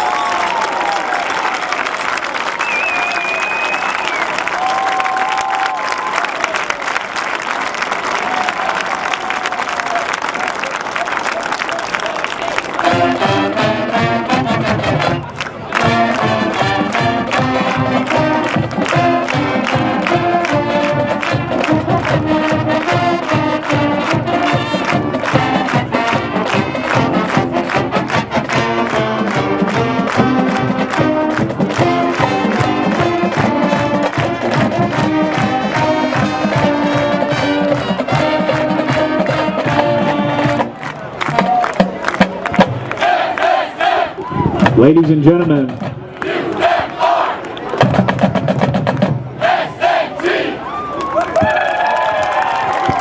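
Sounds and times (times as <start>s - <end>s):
marching band playing: 12.3s - 50.6s.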